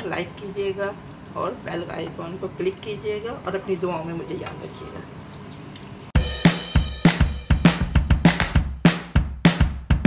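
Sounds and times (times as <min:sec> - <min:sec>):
upbeat music with drum beat: 0:06.2 - 0:10.0.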